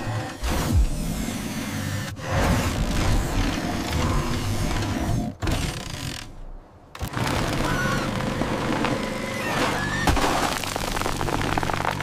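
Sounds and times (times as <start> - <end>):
concrete cracking and breaking: 10.0 - 12.0.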